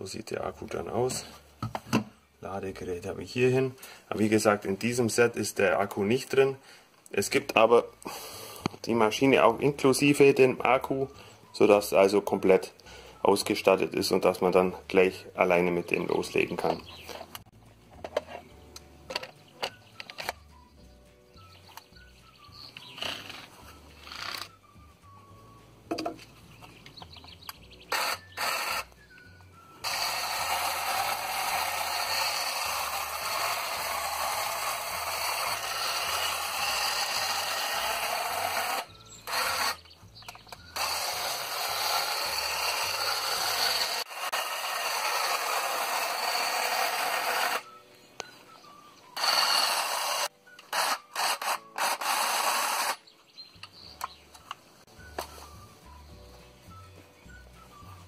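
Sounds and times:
cordless hedge trimmer running: 27.9 - 28.9, 29.8 - 39.8, 40.8 - 47.6, 49.2 - 53.0.

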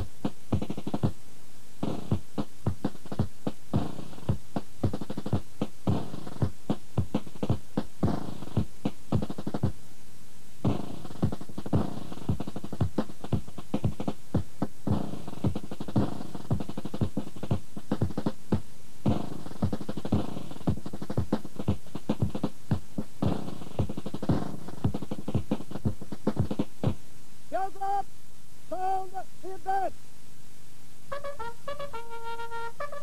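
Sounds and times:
rapid drum beats: 0.0 - 1.2, 1.8 - 9.8, 10.6 - 28.0
brass melody: 31.1 - 33.0.

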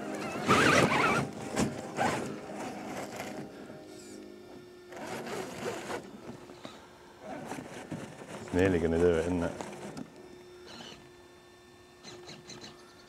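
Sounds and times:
rc car motor and gears whirring: 0.1 - 3.4, 4.9 - 6.0, 7.3 - 11.2, 12.0 - 13.0.

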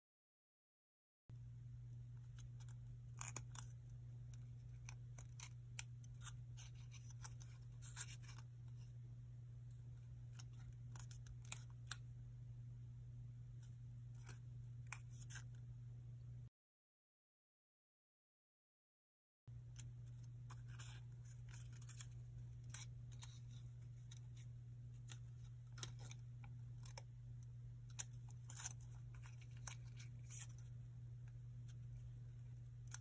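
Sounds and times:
steady low hum: 1.3 - 16.5, 19.5 - 33.0
paper crinkling and crackling: 2.3 - 8.9, 19.6 - 33.0.

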